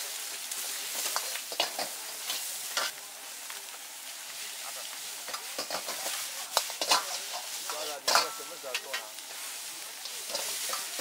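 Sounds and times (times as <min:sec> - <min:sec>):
ladle scraping and knocking wok: 0:00.0 - 0:03.0, 0:04.8 - 0:11.0
food sizzling in hot oil: 0:00.0 - 0:11.0.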